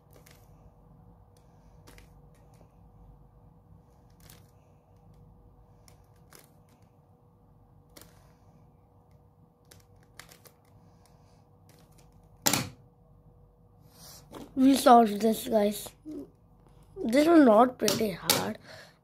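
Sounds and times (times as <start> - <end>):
rubik's cube clicking: 9.1 - 10.8.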